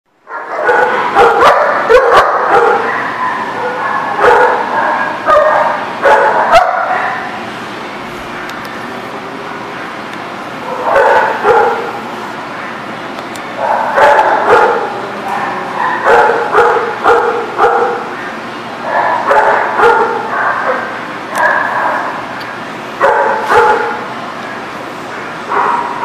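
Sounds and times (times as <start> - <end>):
dogs barking and yipping: 0.3 - 7.5, 10.6 - 12.9, 13.5 - 22.4, 23.0 - 24.2, 25.2 - 26.0.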